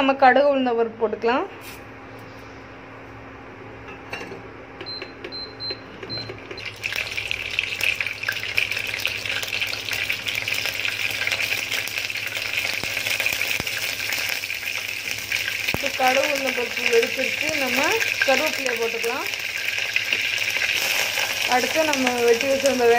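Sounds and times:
cooktop beeps: 0:04.8 - 0:07.7
seeds spluttering in hot oil: 0:06.6 - 0:22.9.

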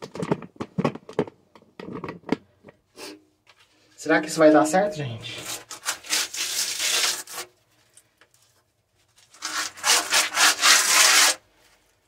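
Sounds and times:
putty scraping on rough wall: 0:05.4 - 0:07.6, 0:09.3 - 0:11.5.

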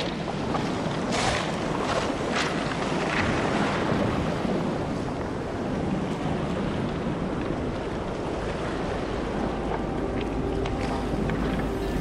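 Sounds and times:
surf washing around legs: 0:00.0 - 0:12.0
wind buffeting microphone: 0:00.0 - 0:12.0.

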